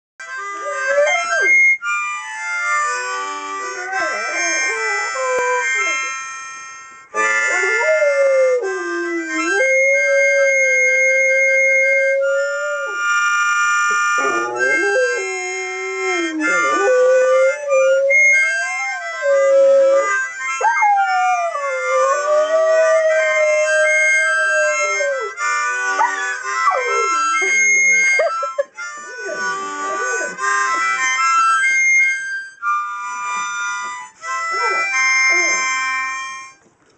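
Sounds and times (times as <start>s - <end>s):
harmonica chords: 0.2s - 36.8s
dog howling: 0.6s - 1.6s, 3.6s - 6.1s, 7.5s - 13.1s, 13.9s - 28.2s, 34.5s - 35.7s.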